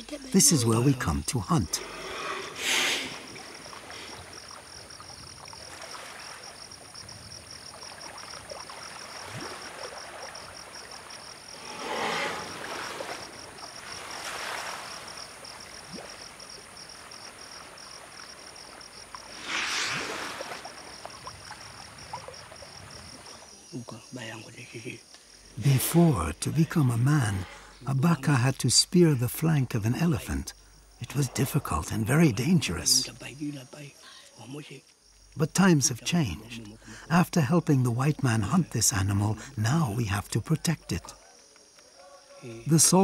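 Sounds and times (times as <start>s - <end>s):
insects calling: 0.0s - 43.0s
elephants splashing in water: 1.8s - 23.5s.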